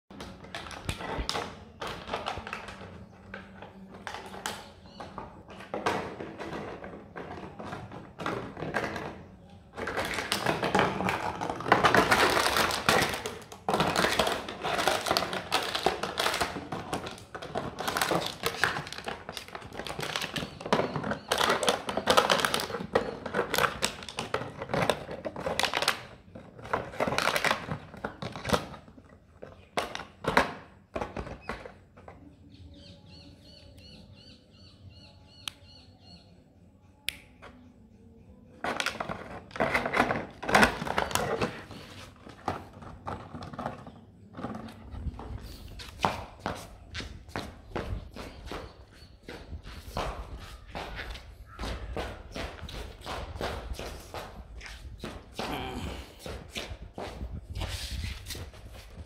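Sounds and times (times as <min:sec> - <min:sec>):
plastic bottle crackling: 0:09.8 - 0:31.3.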